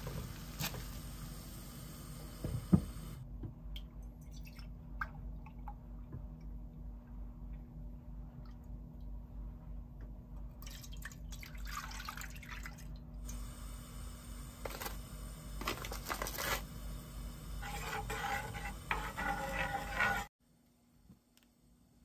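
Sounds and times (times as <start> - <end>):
spoon stirring milk in a pan: 17.6 - 20.3.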